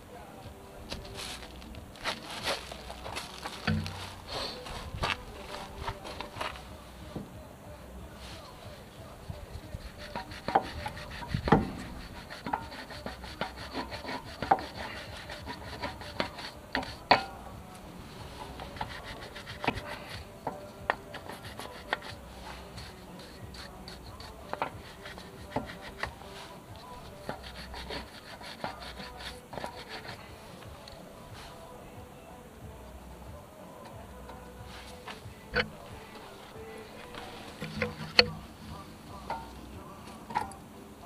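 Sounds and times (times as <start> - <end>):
tool scraping metal caliper: 9.5 - 17.4, 18.4 - 30.2, 35.5 - 38.6.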